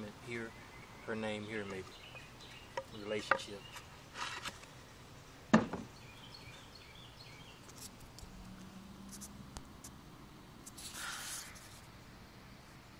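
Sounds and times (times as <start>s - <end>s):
hand rubbing on microphone: 9.0s - 10.0s, 10.6s - 11.9s.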